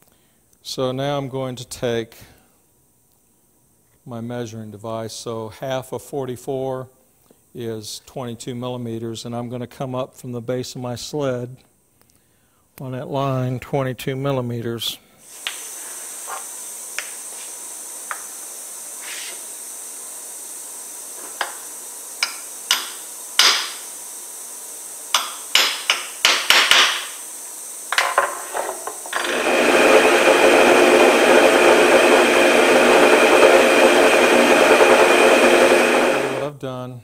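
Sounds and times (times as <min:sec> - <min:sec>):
drill press motor running: 0:15.3 - 0:36.5
hammer tapping on steel: 0:22.2 - 0:23.7, 0:25.1 - 0:26.9.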